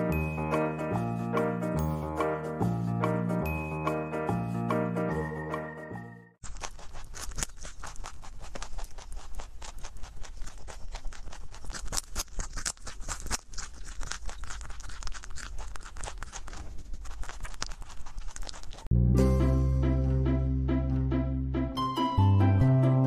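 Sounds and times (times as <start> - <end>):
rabbit crunching carrot: 6.4 - 18.9.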